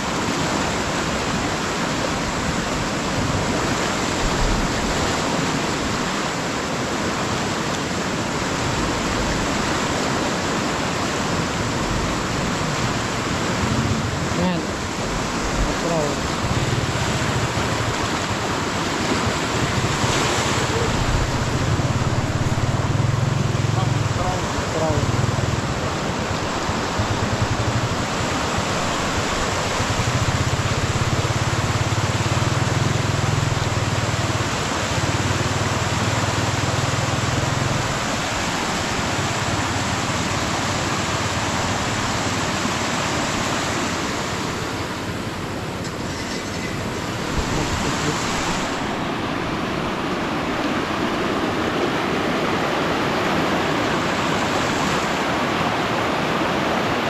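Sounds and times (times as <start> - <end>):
floodwater rushing: 0.0 - 57.0.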